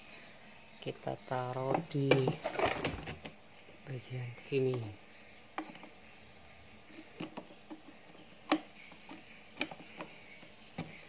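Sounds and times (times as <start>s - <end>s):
plastic clicks and knocks: 5.6s - 5.9s, 7.0s - 11.0s.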